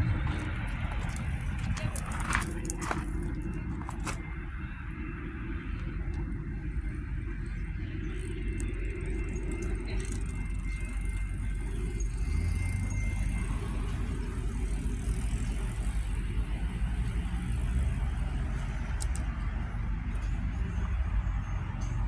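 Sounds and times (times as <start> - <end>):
train rumbling: 0.0 - 22.0.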